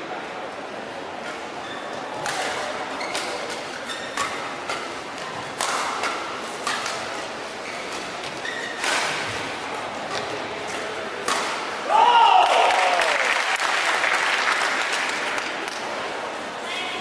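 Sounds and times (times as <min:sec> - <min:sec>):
badminton rackets hitting shuttlecock: 0:02.2 - 0:11.8
shoe squeaks on court floor: 0:02.9 - 0:04.5, 0:07.6 - 0:09.4.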